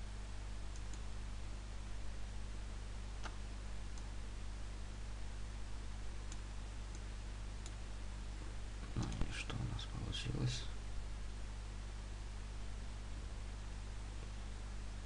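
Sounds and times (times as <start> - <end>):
low electrical hum: 0.0 - 15.0
computer mouse clicks: 0.7 - 1.0, 9.0 - 9.3.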